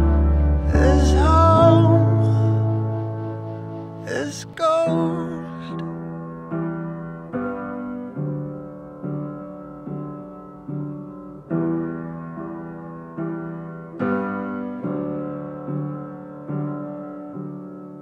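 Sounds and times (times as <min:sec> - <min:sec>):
slow piano chords: 0:00.0 - 0:18.0.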